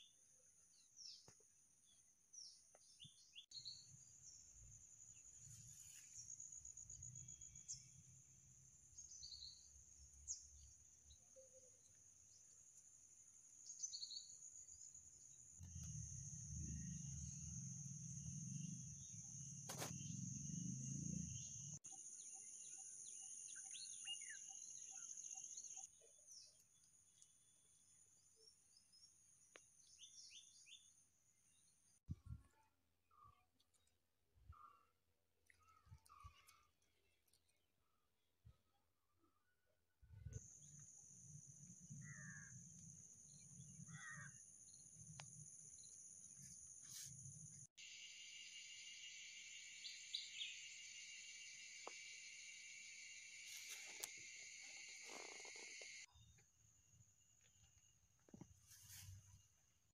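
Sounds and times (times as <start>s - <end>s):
insects trilling: 40.4s - 56.1s.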